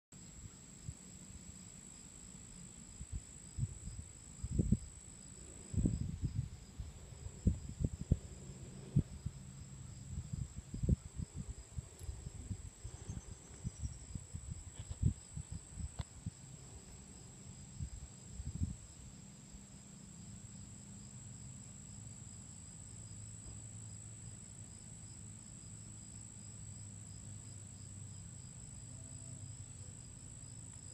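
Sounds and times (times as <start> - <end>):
crickets trilling: 0.2 - 30.9
faint pulsing chirp: 12.0 - 14.2
soft knocks and rubbing on microphone: 14.6 - 16.1.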